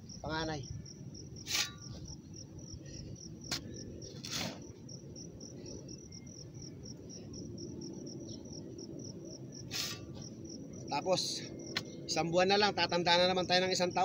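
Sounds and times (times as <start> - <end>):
insect chirping: 0.0 - 14.0
shovel scraping in soil: 1.4 - 2.1, 3.5 - 4.8, 9.7 - 10.2.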